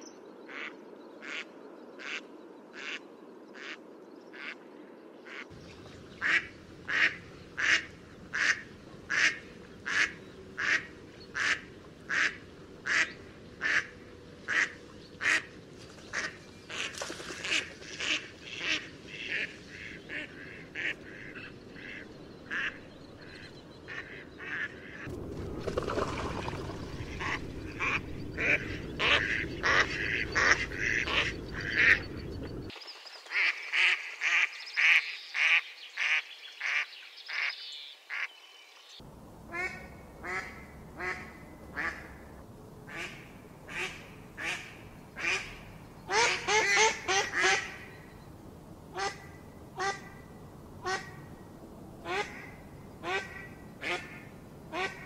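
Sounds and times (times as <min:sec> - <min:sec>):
low rushing noise: 0:05.5 - 0:32.7, 0:39.0 - 0:55.0
ducks quacking: 0:06.2 - 0:25.1, 0:25.9 - 0:32.7, 0:39.5 - 0:42.2.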